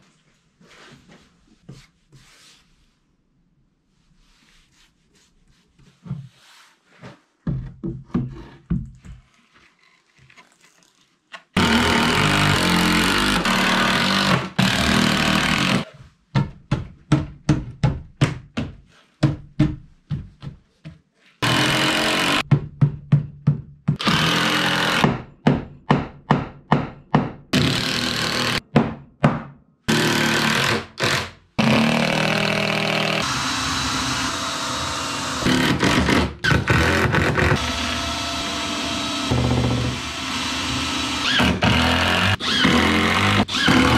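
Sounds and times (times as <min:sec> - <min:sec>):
power tool running: 0:11.6 - 0:15.8, 0:29.9 - 0:43.9.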